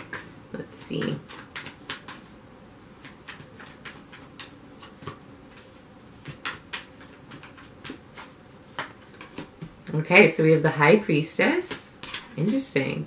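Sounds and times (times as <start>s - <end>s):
cards being shuffled: 0.0s - 2.4s, 3.0s - 9.8s.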